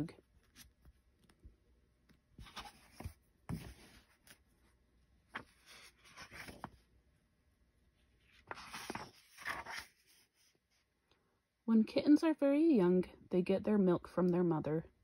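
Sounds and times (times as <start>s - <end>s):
book pages turning: 0.3s - 4.5s, 5.2s - 6.8s, 8.2s - 10.5s.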